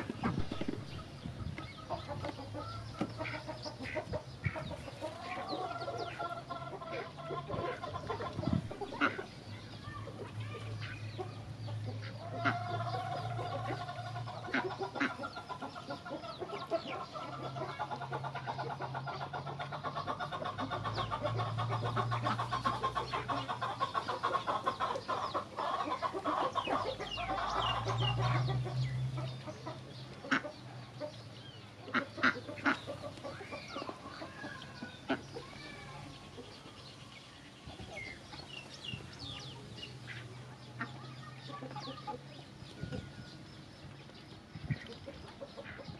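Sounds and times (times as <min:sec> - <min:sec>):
chickens clucking: 0:00.0 - 0:45.9
ducks feeding: 0:00.0 - 0:45.9.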